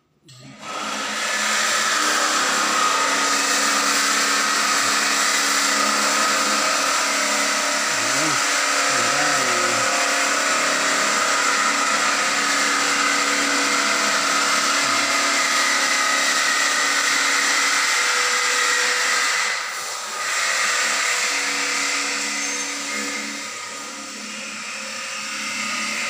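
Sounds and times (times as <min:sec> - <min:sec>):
machinery droning with whine: 0:02.0 - 0:18.6.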